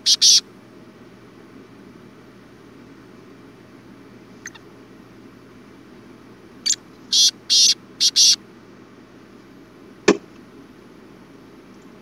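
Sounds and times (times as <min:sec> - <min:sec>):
francolin calling: 0:00.0 - 0:00.4, 0:04.4 - 0:04.7, 0:06.6 - 0:08.4.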